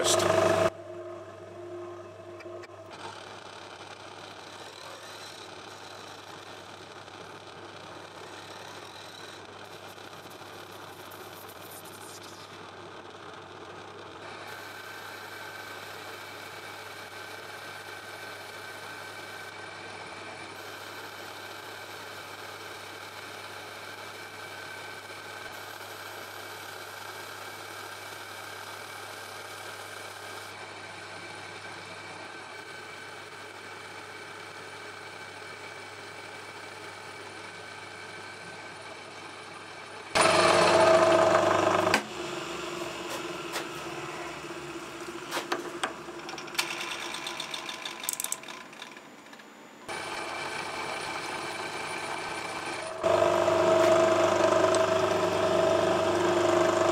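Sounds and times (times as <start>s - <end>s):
loud harsh machining noise: 0.0s - 0.8s, 38.1s - 45.9s, 49.9s - 56.9s
metal lathe humming and whining: 0.0s - 6.7s, 29.3s - 49.0s, 49.9s - 56.9s.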